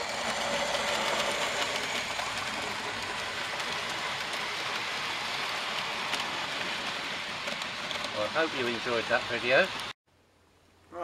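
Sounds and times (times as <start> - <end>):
model train wheels rumbling: 0.0 - 10.0.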